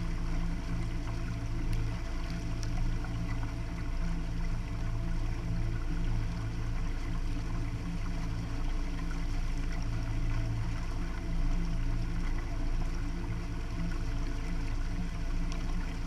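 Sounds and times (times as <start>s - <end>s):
boat engine drone: 0.0s - 16.0s
water rushing along hull: 0.0s - 16.0s.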